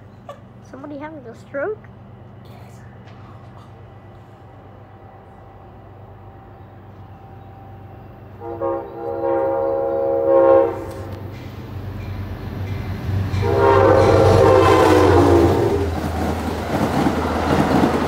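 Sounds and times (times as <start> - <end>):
low rumble of approaching train: 0.0 - 18.0
train air horn blasts: 8.4 - 11.3, 13.4 - 16.0.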